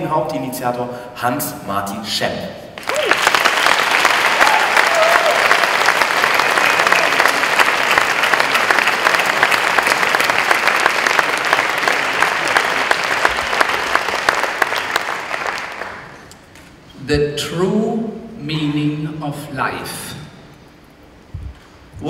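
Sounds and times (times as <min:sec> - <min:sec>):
crowd applauding: 0:02.8 - 0:16.3.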